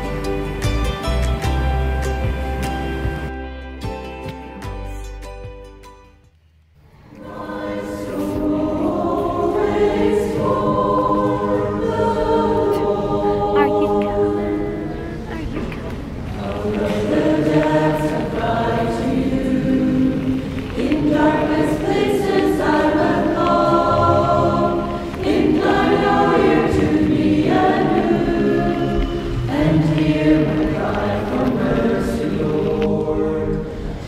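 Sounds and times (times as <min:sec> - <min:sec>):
choir singing in harmony: 0:07.0 - 0:15.3, 0:16.1 - 0:34.0.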